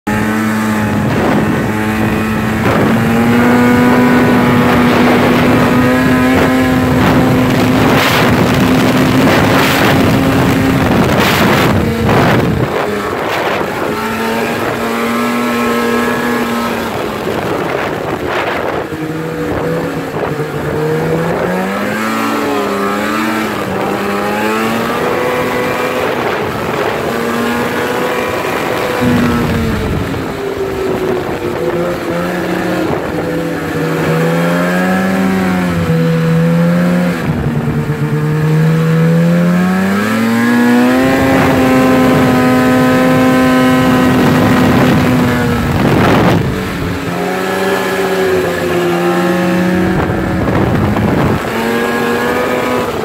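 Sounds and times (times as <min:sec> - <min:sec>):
snowmobile engine running: 0:00.1 - 0:53.0
bursts of rushing noise: 0:23.4 - 0:38.3.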